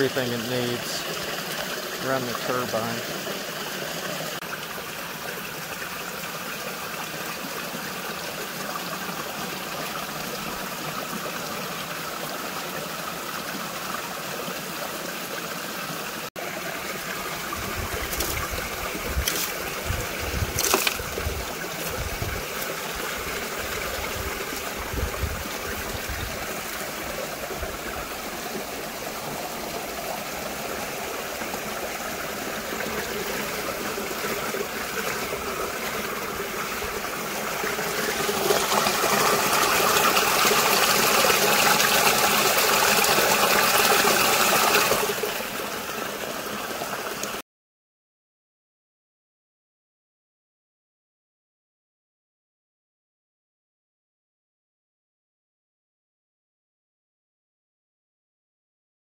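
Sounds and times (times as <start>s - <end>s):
water running down metal flume: 0.0s - 14.7s, 16.4s - 47.4s
hand rustling and knocking leaves: 17.9s - 19.7s, 20.3s - 22.8s.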